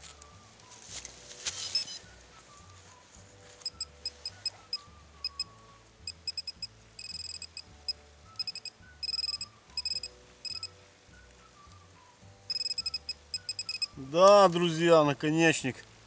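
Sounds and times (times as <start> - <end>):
soft background music: 0.0 - 16.0
pinpointer beeping: 3.6 - 5.5, 6.1 - 10.7, 12.5 - 14.0.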